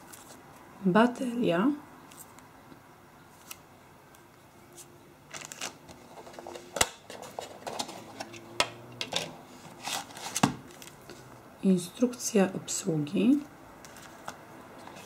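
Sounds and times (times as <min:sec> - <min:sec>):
cardboard rustling: 0:04.8 - 0:08.3, 0:09.5 - 0:11.2.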